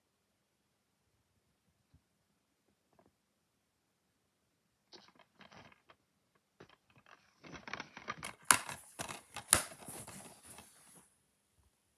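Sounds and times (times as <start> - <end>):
plastic case clicks and rustling: 7.6 - 10.7.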